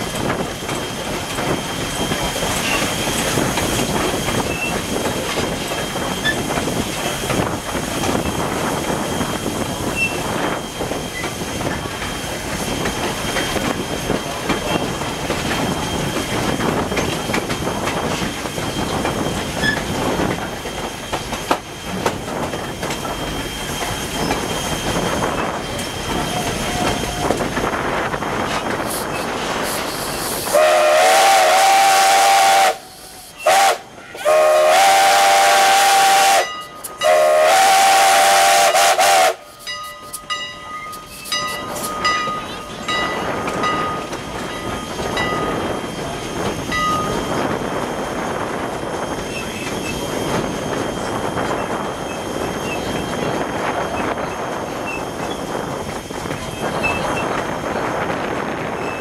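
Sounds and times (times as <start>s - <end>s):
train rumble and clickety-clack: 0.0s - 59.0s
steam whistle blast: 30.5s - 39.5s.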